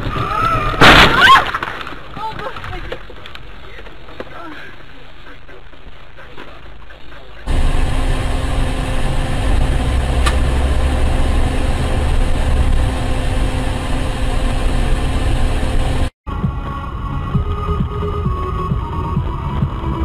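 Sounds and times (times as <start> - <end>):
road noise: 2.2 - 20.0
vehicle engine: 7.4 - 20.0.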